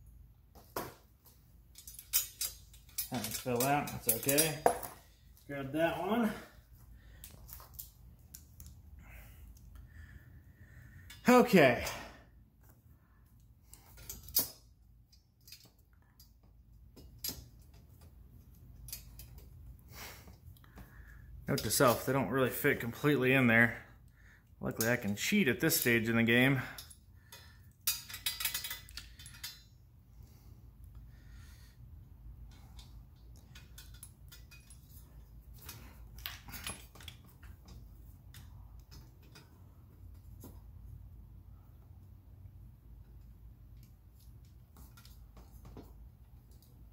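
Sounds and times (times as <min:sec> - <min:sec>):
metallic clicks and scrapes: 0:01.7 - 0:05.5, 0:26.7 - 0:29.8, 0:32.4 - 0:40.8.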